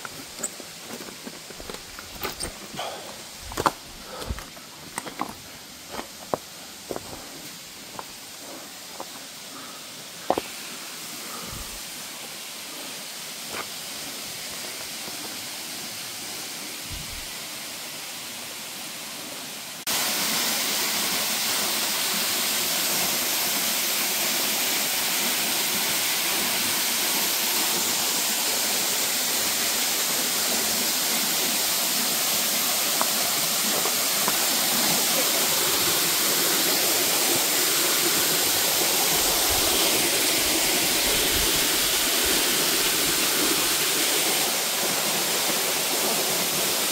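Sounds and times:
waterfall rushing: 0.0s - 46.9s.

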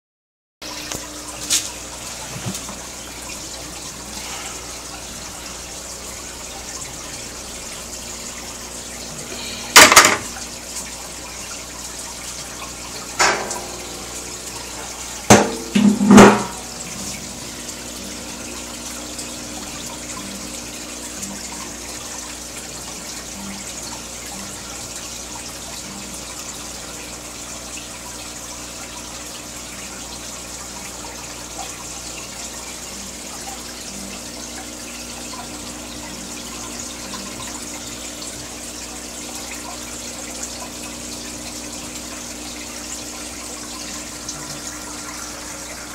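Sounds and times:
aquarium water bubbling: 0.6s - 45.9s.

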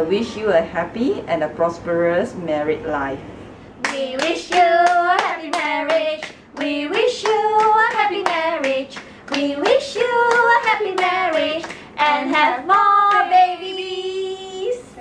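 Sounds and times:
women singing together: 3.8s - 15.0s.

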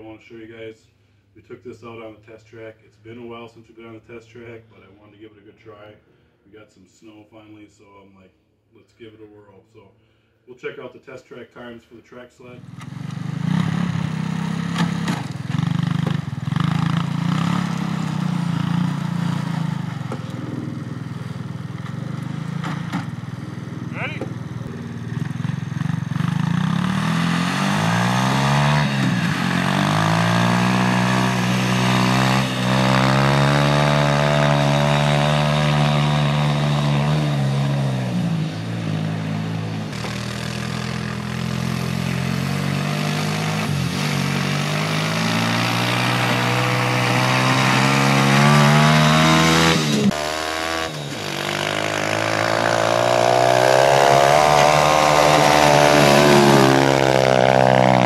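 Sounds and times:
sled engine revving: 12.6s - 58.0s.

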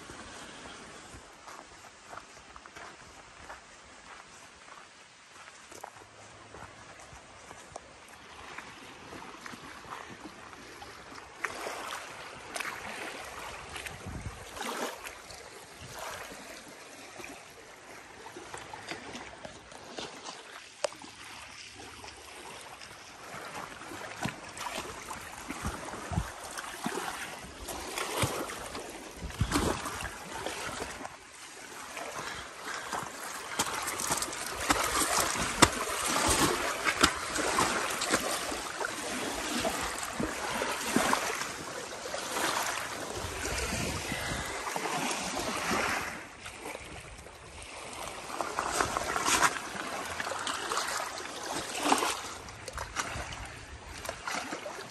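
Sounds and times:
water lapping at shore: 0.0s - 54.9s.

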